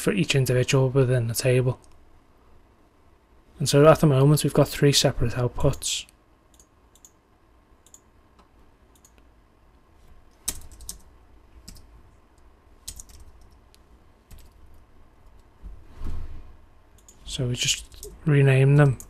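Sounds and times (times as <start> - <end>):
mouse clicks: 6.5 - 7.2, 7.8 - 9.3
keyboard keystrokes: 12.8 - 13.6.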